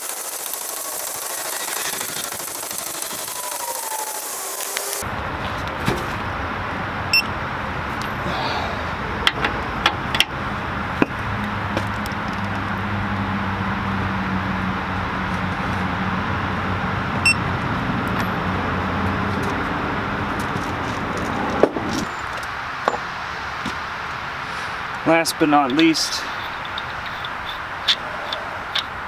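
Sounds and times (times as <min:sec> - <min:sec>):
torque wrench clicks: 0:26.4 - 0:29.0.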